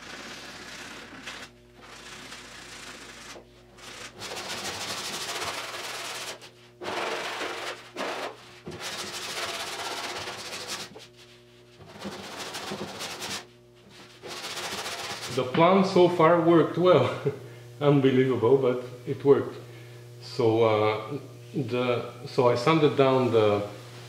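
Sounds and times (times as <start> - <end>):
sandpaper rasping: 0.0 - 15.4.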